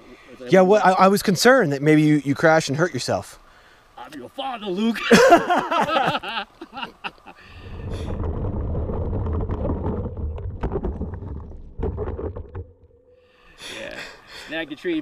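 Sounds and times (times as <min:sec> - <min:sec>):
wind on microphone: 0:07.5 - 0:12.6
bike tyres rumbling on rocks: 0:07.6 - 0:13.0.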